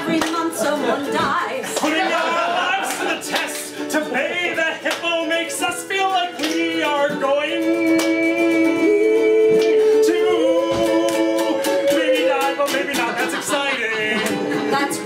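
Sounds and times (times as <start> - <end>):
strummed ukulele: 0.0 - 15.0
person singing long notes: 6.5 - 13.0.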